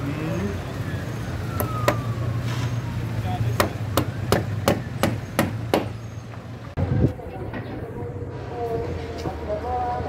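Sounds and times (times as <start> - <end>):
sharp hammer strikes: 3.6 - 6.0.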